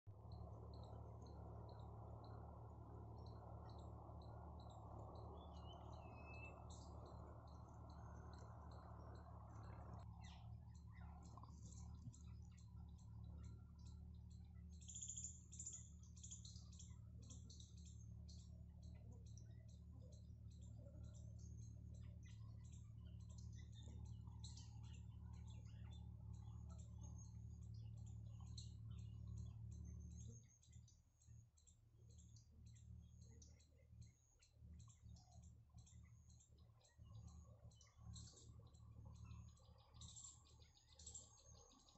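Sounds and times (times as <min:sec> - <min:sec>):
low steady hum: 0:00.0 - 0:41.9
high-pitched ticking chirps: 0:14.7 - 0:19.4.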